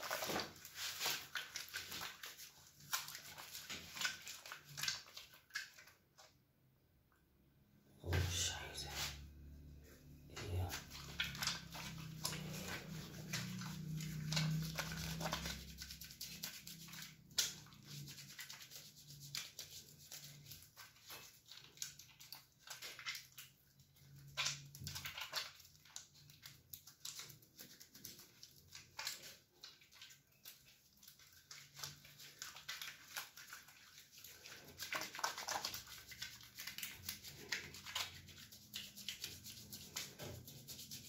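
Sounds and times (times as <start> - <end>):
soapy hands rubbing together: 0.0 - 6.4, 8.0 - 41.0.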